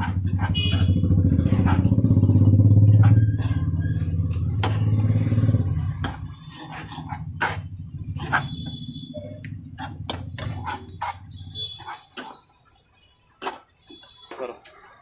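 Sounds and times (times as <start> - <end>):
motorcycle engine running: 0.0 - 11.8.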